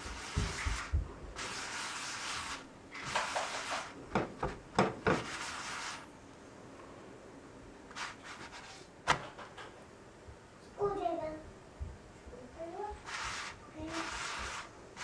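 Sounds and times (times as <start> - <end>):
cloth scraping a pan: 0.0 - 6.1, 13.0 - 15.0.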